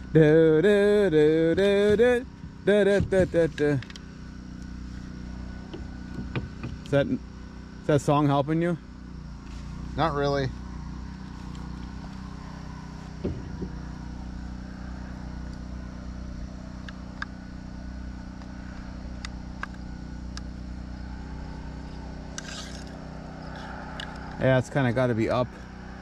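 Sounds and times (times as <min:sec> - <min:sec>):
low engine-like hum: 0:00.0 - 0:26.0
soft knock: 0:13.2 - 0:13.8.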